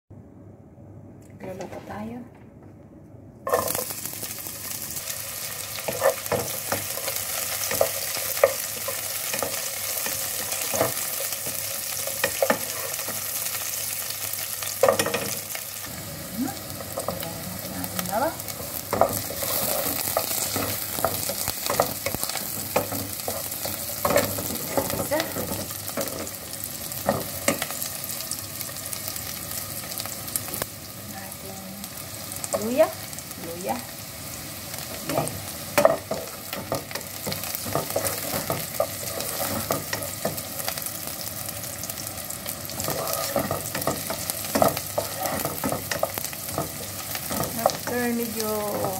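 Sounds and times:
onions sizzling in a pot: 0:03.5 - 0:48.9
wooden spatula scraping pan: 0:17.0 - 0:26.4, 0:35.1 - 0:40.7, 0:42.7 - 0:48.9.

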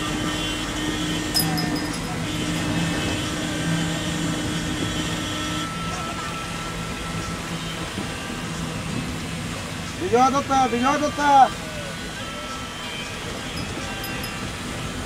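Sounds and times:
road noise: 0:00.0 - 0:15.0
vehicle engine running: 0:01.2 - 0:05.4.

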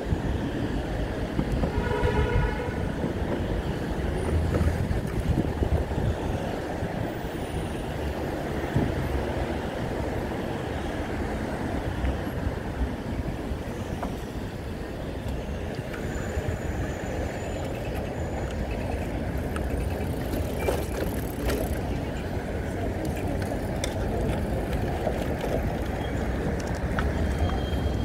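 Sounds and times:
wind rush on microphone: 0:00.0 - 0:10.8
bicycle rolling rumble: 0:00.0 - 0:28.0
road traffic: 0:00.0 - 0:28.0.

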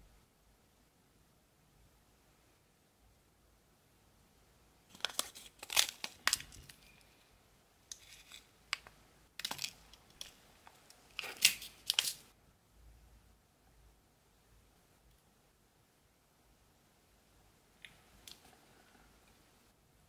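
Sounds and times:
plastic bag crinkling: 0:04.9 - 0:07.0.

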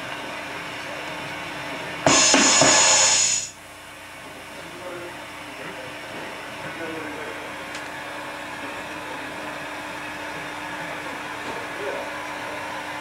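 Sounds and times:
steady hiss: 0:02.1 - 0:03.5.

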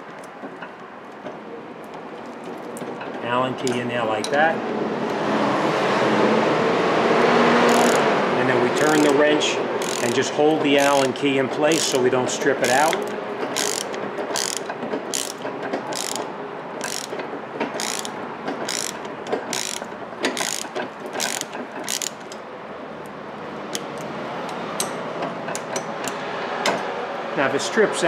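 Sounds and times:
ratchet wrench clicking: 0:07.6 - 0:08.1, 0:08.8 - 0:09.2, 0:09.8 - 0:12.0, 0:12.6 - 0:22.4.

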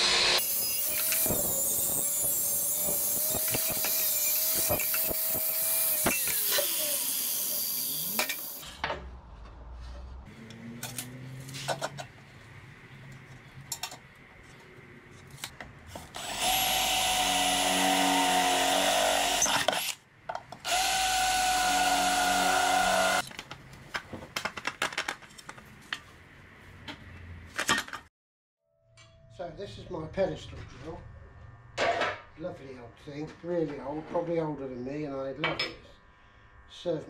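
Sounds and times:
electric drill whining: 0:00.0 - 0:08.6, 0:16.1 - 0:20.0, 0:20.6 - 0:23.3.

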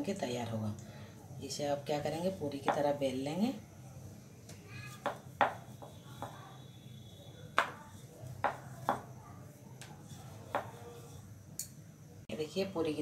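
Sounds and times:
rolling pin rolling dough: 0:02.0 - 0:11.4
rolling pin knocking on counter: 0:05.0 - 0:06.4, 0:07.5 - 0:07.8, 0:08.4 - 0:09.1, 0:10.5 - 0:10.8.

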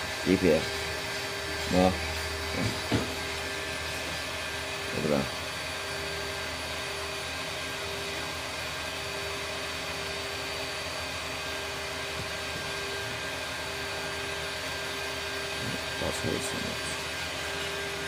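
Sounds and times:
whirring machine: 0:00.0 - 0:18.0.

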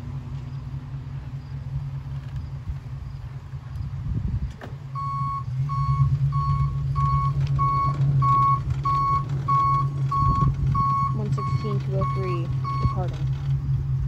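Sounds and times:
truck engine hum: 0:00.0 - 0:14.0
truck backup alarm beeping: 0:04.9 - 0:13.3.

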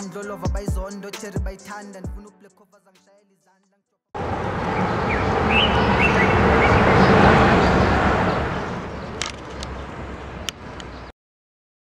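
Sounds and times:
rushing traffic-like noise: 0:04.2 - 0:11.1
sharp clicks: 0:09.2 - 0:09.8, 0:10.4 - 0:11.0.

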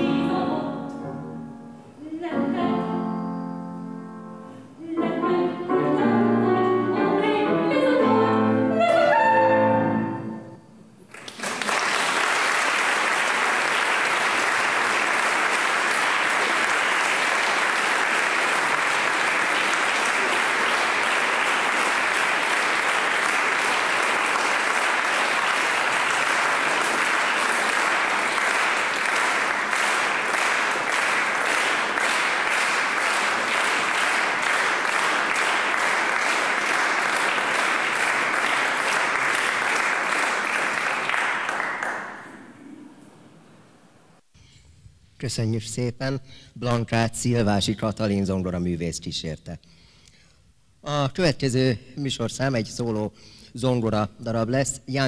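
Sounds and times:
audience applauding in a hall: 0:11.0 - 0:43.2.

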